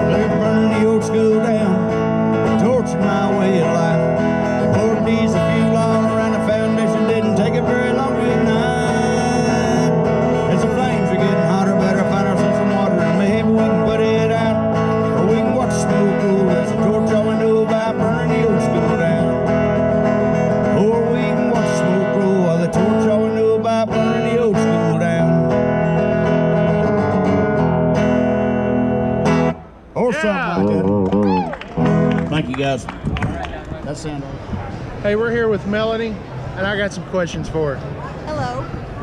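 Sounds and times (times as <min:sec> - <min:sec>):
man singing: 0:00.0 - 0:25.8
acoustic guitar strumming: 0:00.0 - 0:31.1, 0:31.8 - 0:32.8.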